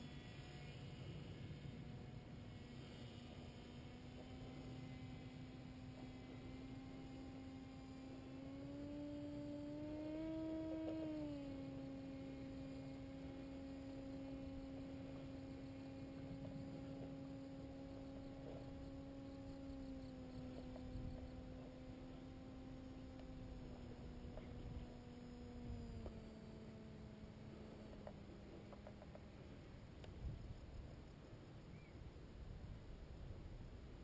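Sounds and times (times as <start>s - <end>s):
distant paramotor engine hum: 0.0s - 34.0s.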